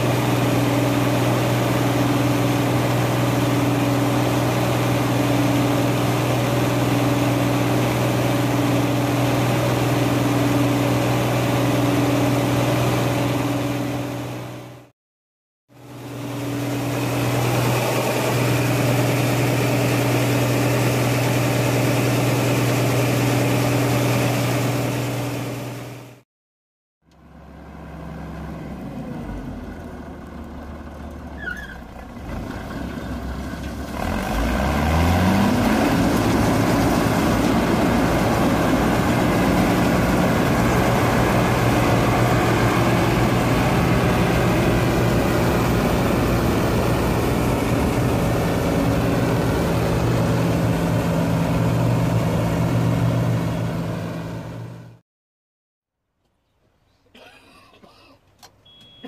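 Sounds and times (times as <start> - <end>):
combine harvester diesel engine: 0.0 - 14.9, 15.8 - 26.2, 27.1 - 55.0
auger pouring grain into trailer: 31.5 - 52.3.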